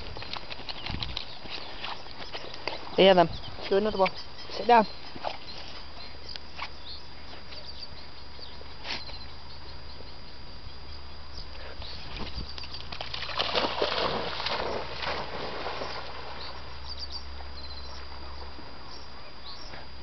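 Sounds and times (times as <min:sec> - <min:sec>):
small clicks and rustles: 0:00.0 - 0:02.8
low steady hum: 0:00.0 - 0:20.0
dog splashing into water: 0:12.2 - 0:16.5.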